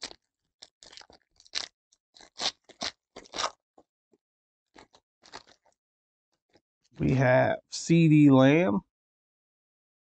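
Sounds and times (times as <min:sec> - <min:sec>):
foil wrapper crinkling and tearing: 0:00.0 - 0:03.6, 0:04.8 - 0:05.8.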